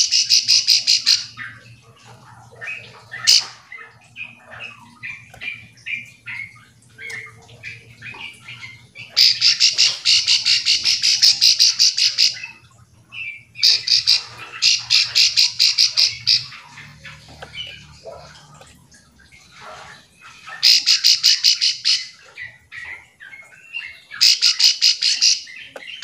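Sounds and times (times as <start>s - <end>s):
bird chirping: 0.0s - 18.7s, 19.3s - 26.0s.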